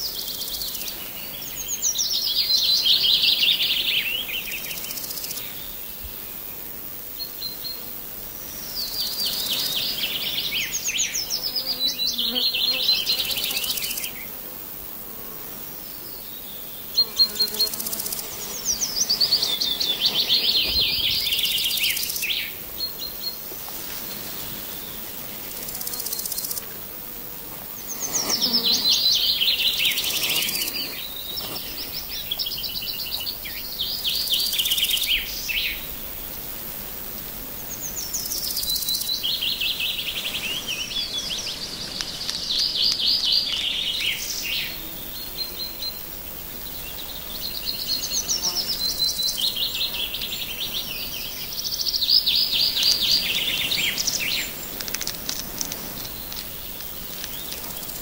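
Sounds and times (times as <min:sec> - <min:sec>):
songbird singing: 0:00.0 - 0:14.4, 0:15.2 - 0:36.0, 0:37.5 - 0:58.0
faint outdoor hiss: 0:00.0 - 0:58.0
sharp clicks: 0:54.7 - 0:57.7.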